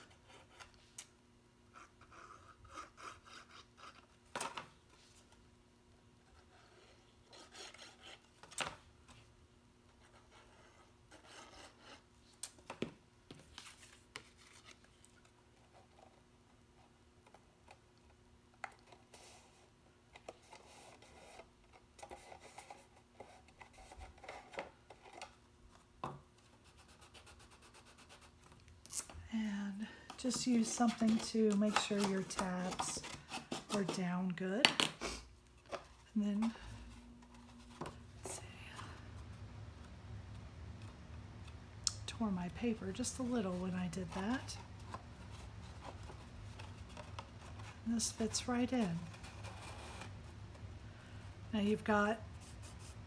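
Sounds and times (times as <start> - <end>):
cardstock rubbing and rustling: 29.8 - 34.4.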